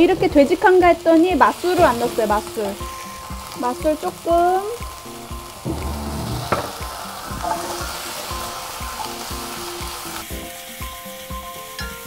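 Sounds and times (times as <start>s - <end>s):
vegetables sizzling in frying pan: 0.0s - 12.0s
wooden spatula scraping pan: 5.6s - 8.0s.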